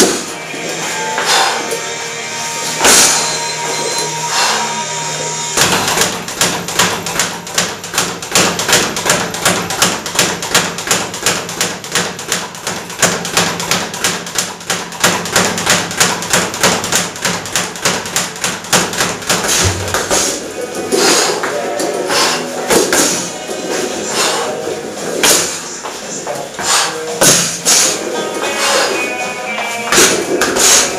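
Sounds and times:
speed bag knocks: 5.6 - 20.4, 26.6 - 27.9, 29.6 - 30.9.

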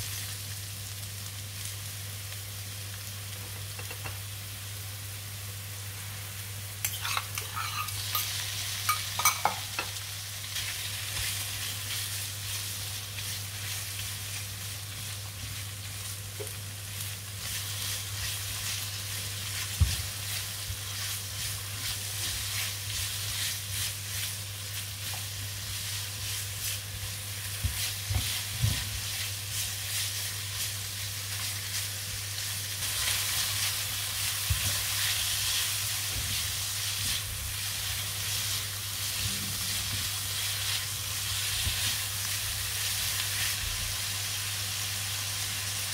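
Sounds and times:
food sizzling in a pan: 0.0 - 45.9
spatula scraping a pan: 6.8 - 9.9.

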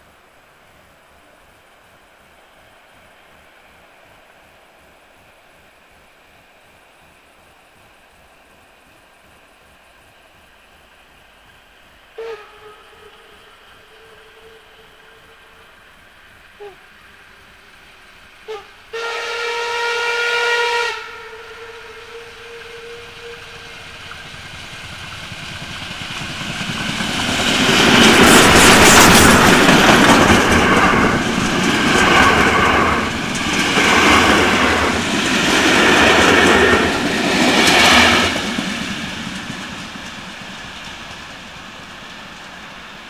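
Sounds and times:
train rumble and hiss: 0.0 - 43.0
steam whistle blast: 12.2 - 15.8, 16.6 - 17.1, 18.4 - 24.0
wheels clattering over rail joints: 24.0 - 42.6.

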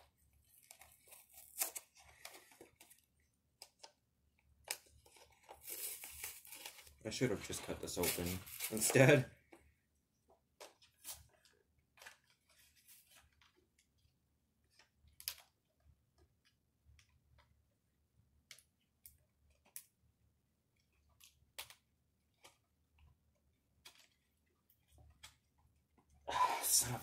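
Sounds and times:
plastic packaging crackling: 4.8 - 9.2.

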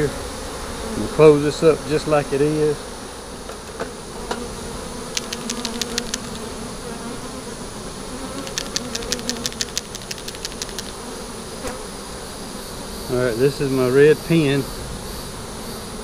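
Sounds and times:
honeybees buzzing: 0.0 - 16.0
rapid ticking: 5.2 - 6.5, 8.4 - 11.0.

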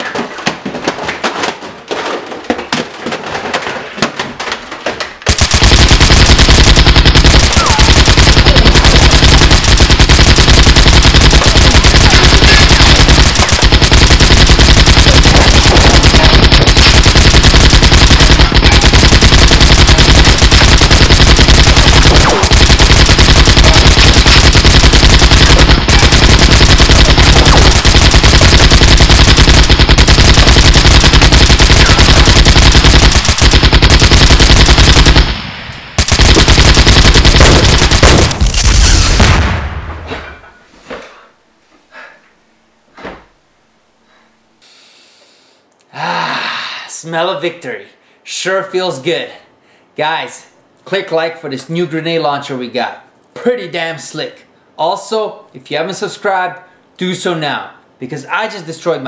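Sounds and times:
machine gun firing: 5.2 - 40.0.

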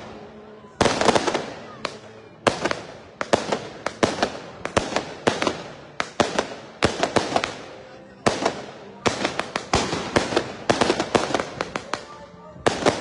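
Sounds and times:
fireworks bangs echoing: 0.0 - 13.0.

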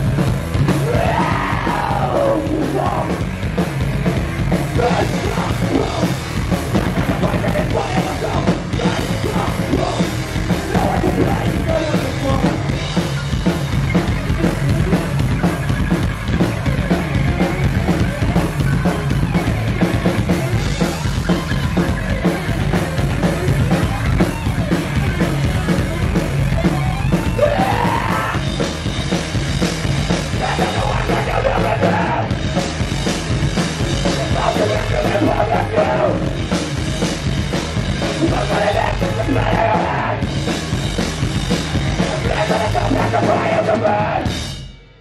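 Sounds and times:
bass guitar: 0.0 - 45.0
fast drums with crashing cymbals: 0.0 - 45.0
vocalist yelling: 0.8 - 3.2, 27.3 - 28.5, 30.4 - 32.3.

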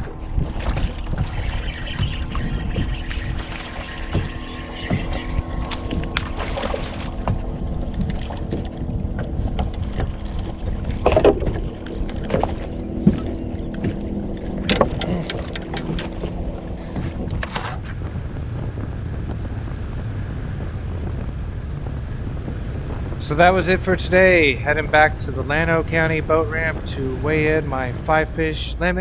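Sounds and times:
steady low hum: 0.0 - 29.0
wind rumble: 0.0 - 29.0.

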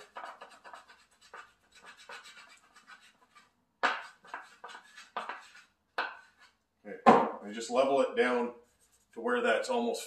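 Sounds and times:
hand plane scraping filler: 0.0 - 6.6.

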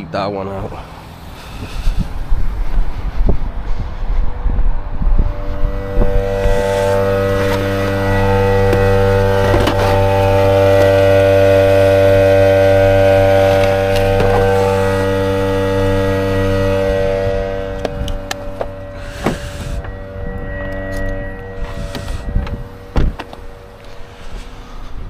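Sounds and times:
machine humming: 0.0 - 25.0.

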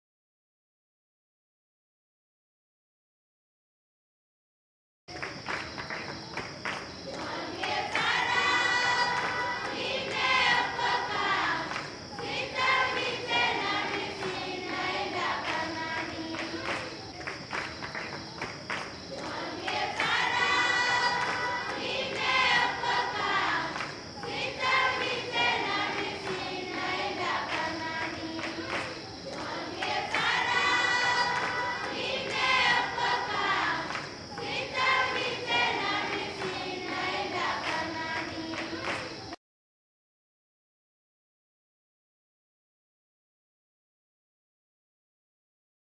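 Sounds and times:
students singing prayer in chorus: 5.2 - 39.4.

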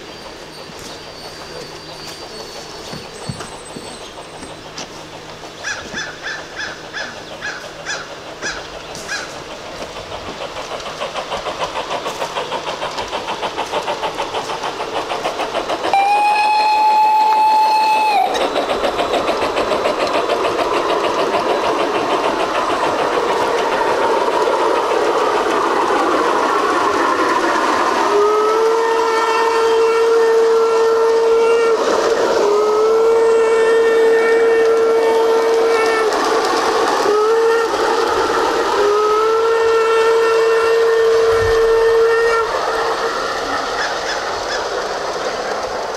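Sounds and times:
model train wheels clicking: 0.0 - 45.9
low train whistle: 15.9 - 18.4, 28.0 - 36.2, 37.0 - 38.1, 38.7 - 43.0
short high train whistle: 15.9 - 18.4, 28.1 - 36.2, 37.1 - 37.8, 38.8 - 42.6.

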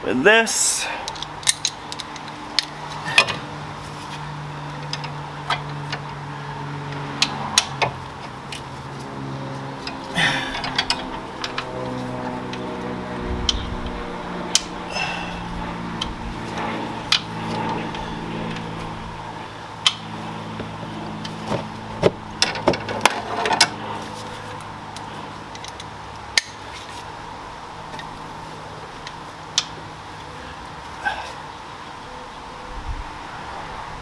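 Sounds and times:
steady low hum: 8.0 - 22.5.

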